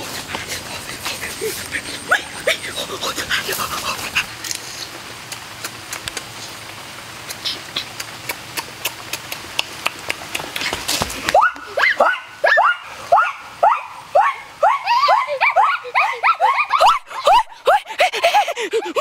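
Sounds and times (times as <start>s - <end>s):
high yelping cries: 0.8s - 3.0s, 11.3s - 19.0s.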